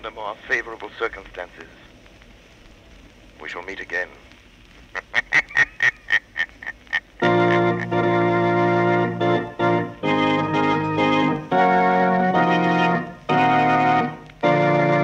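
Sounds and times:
organ playing held chords: 7.2s - 15.0s.

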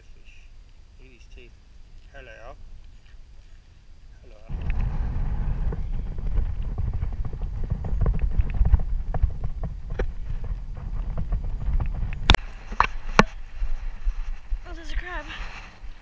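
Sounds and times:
camera handling rumble: 4.5s - 13.4s.

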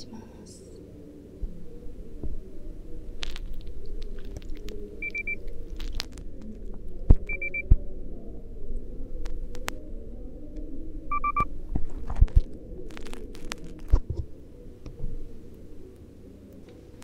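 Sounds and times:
muffled room noise: 0.0s - 17.0s
electronic device beeping: 5.0s - 5.4s, 7.3s - 7.7s, 11.1s - 11.5s.

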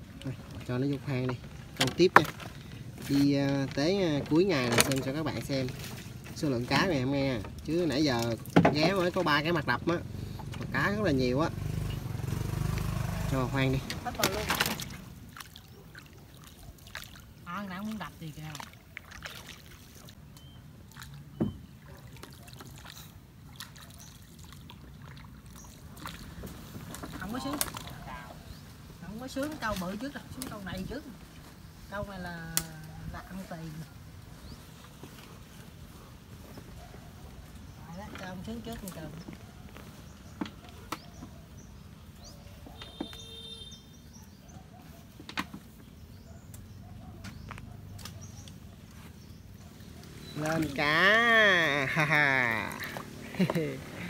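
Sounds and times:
faint bird chirps: 40.6s - 50.8s.

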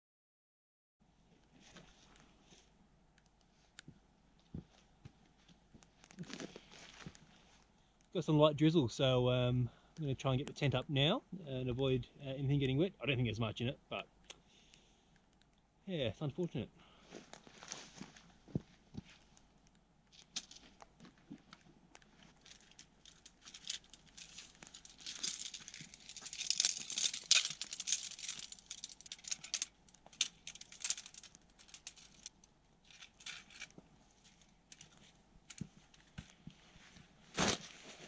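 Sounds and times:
tent fabric rustling: 17.1s - 19.4s, 20.1s - 29.5s, 30.3s - 38.0s
clicks and rattles: 21.5s - 33.8s.

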